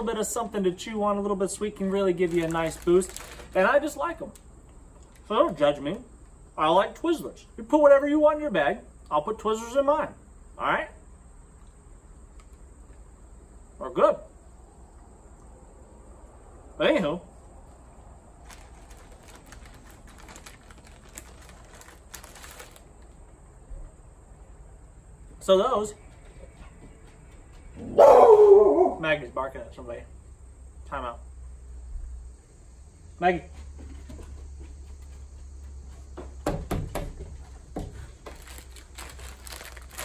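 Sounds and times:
plastic wrapper crinkling: 1.8s - 4.4s, 18.4s - 23.2s, 38.2s - 40.0s.

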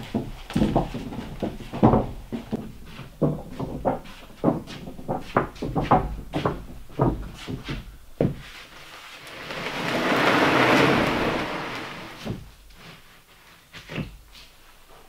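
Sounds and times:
wooden sheet knocking: 0.0s - 8.4s, 9.3s - 12.5s
sheet scraping into place: 9.1s - 12.4s.

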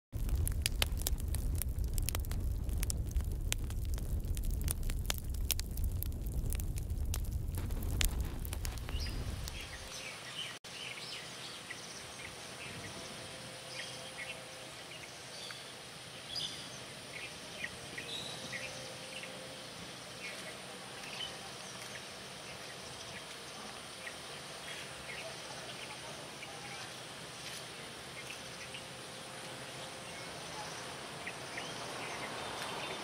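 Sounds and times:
low rumble: 0.2s - 10.0s
birds chirping: 8.0s - 27.0s, 27.8s - 33.0s.

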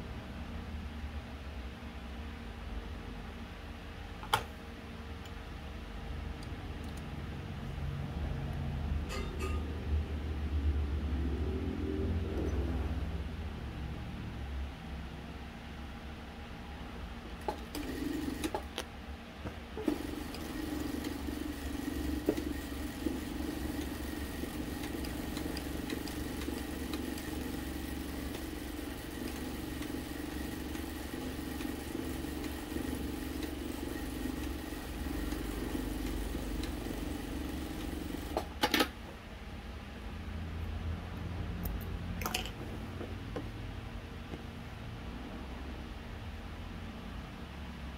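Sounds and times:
sewing machine running: 17.4s - 18.6s, 19.8s - 38.5s.

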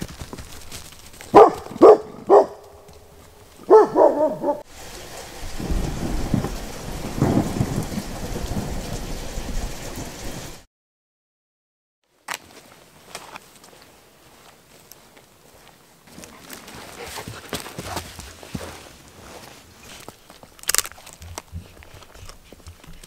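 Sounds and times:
dog barking: 1.3s - 2.8s, 3.7s - 4.7s
thunder rumbling: 3.7s - 10.6s
steady rain: 4.6s - 10.7s.

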